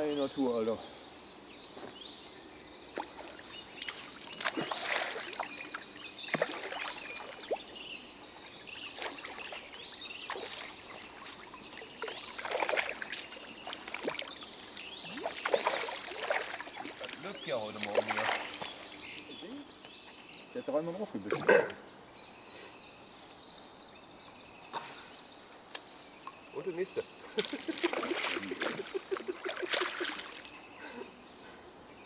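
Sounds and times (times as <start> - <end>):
small birds chirping: 0.0 - 32.0
water splashing and trickling: 2.9 - 19.7, 26.2 - 31.1.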